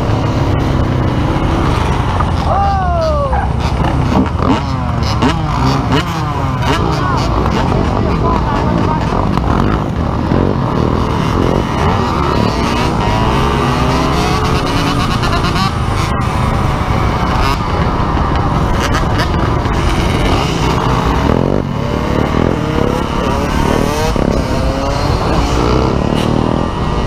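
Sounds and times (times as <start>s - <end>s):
dirt bike engines revving: 0.0s - 27.0s
wind rushing over microphone: 0.0s - 27.0s.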